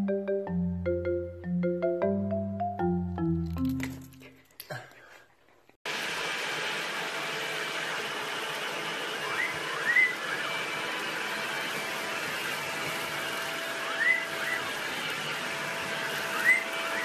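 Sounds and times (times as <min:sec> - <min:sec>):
stick vacuum cleaner running: 0:05.9 - 0:17.0
parrot chirping: 0:09.2 - 0:10.5, 0:13.9 - 0:14.7, 0:16.4 - 0:17.0.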